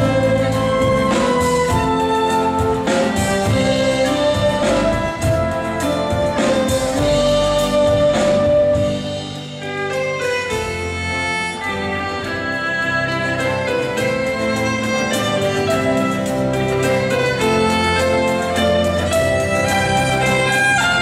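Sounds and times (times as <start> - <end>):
electric and acoustic guitars: 0.0 - 21.0
violin and flutes melody: 0.0 - 21.0.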